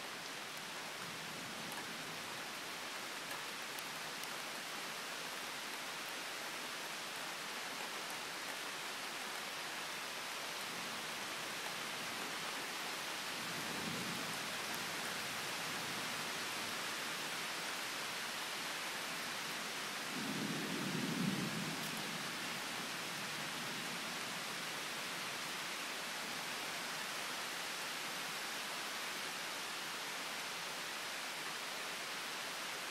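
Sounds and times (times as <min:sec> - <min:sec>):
steady rain hiss: 0:00.0 - 0:32.9.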